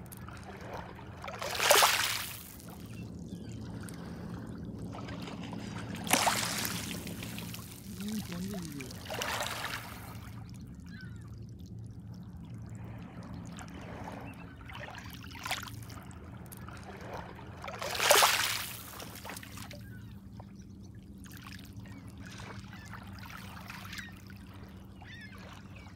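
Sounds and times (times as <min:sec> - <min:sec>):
water splash: 0:01.3 - 0:02.7, 0:05.0 - 0:10.3, 0:17.7 - 0:19.7
waves lapping on pebble shore: 0:01.4 - 0:02.6, 0:05.6 - 0:10.2, 0:17.8 - 0:19.6.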